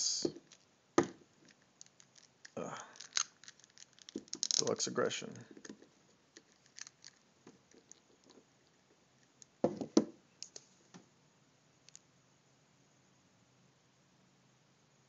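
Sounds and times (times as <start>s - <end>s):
plastic figure handling clicks: 1.5s - 4.8s
knocks: 9.6s - 10.2s.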